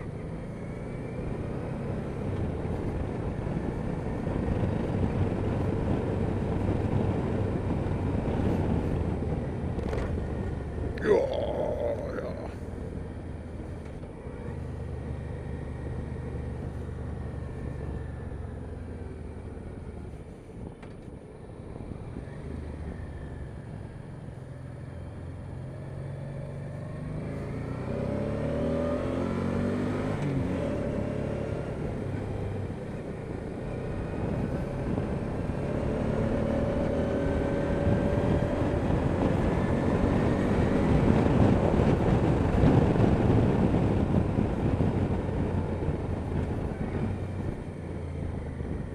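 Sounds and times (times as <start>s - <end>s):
wind noise: 36.9s - 48.9s.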